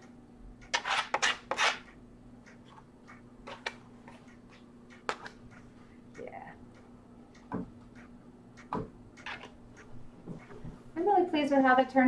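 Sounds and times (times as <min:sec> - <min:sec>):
card scraping paint on canvas: 0:00.7 - 0:01.9.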